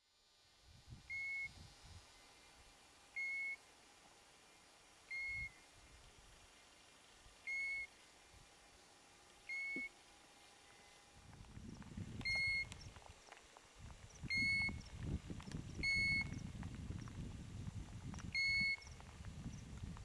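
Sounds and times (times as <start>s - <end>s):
bird whistle call: 1.1s - 1.5s, 3.2s - 3.6s, 5.1s - 5.6s, 7.4s - 7.9s, 9.5s - 9.9s.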